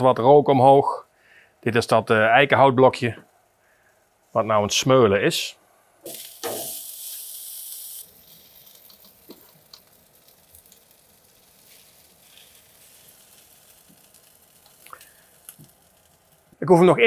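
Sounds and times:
pork sizzling on a grill: 0:06.0 - 0:16.6
small crackles: 0:06.0 - 0:16.6.

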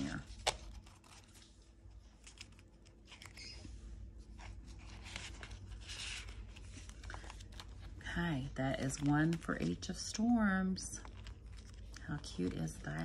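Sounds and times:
paper and plastic rustling: 0:00.0 - 0:13.0.

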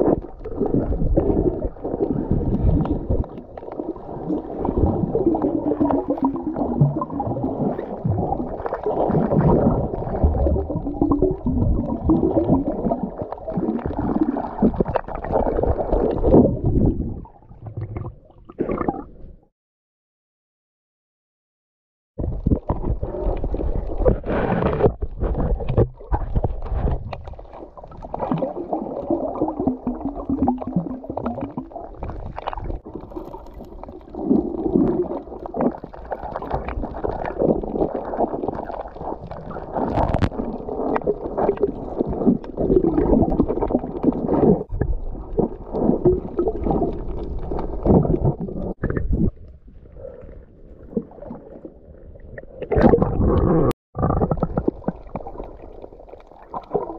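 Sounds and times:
muffled underwater sloshing: 0:22.2 - 0:56.9.

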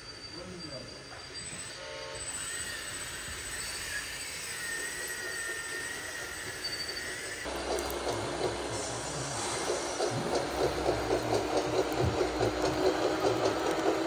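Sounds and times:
electric motors whining: 0:00.0 - 0:14.0
mechanical hiss: 0:00.0 - 0:14.0.

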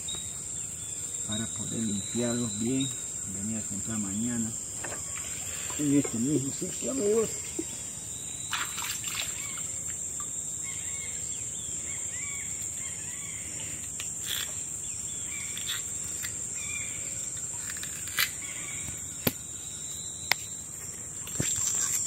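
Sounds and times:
bird chirps: 0:00.0 - 0:09.8
insects droning: 0:00.0 - 0:22.0.

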